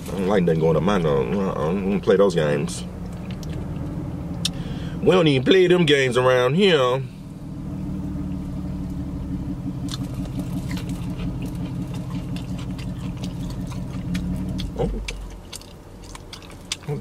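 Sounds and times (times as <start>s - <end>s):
steady low hum: 0.0s - 17.0s
crunching fried chicken: 9.8s - 17.0s.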